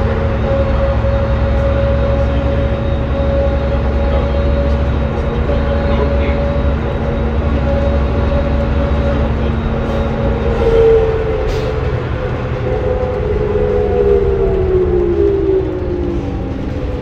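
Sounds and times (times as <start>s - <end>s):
bus drivetrain whine: 0.0s - 17.0s
bus engine rumble: 0.0s - 17.0s.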